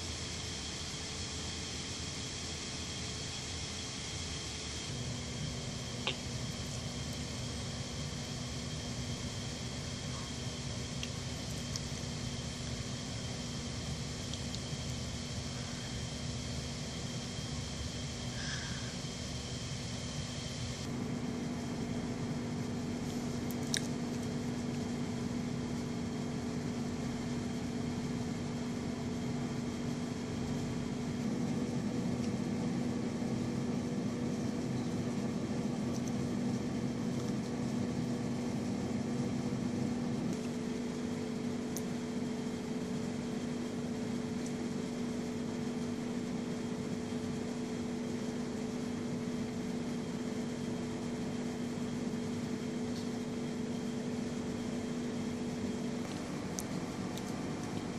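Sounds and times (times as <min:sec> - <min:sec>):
hiss: 0:00.0 - 0:05.0, 0:06.0 - 0:20.9
machinery hum: 0:00.0 - 0:57.9.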